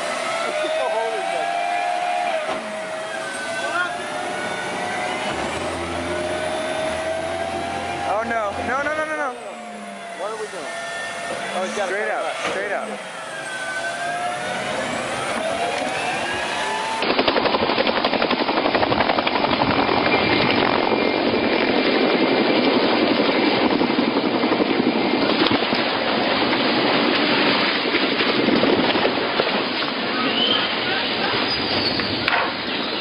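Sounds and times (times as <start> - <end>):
tank engine whining: 0.0 - 33.0
helicopter rotor chopping: 2.3 - 31.4.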